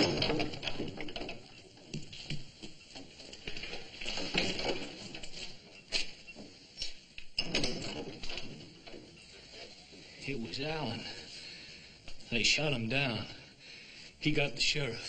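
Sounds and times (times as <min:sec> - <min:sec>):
footsteps on wooden boards: 0:00.0 - 0:06.5.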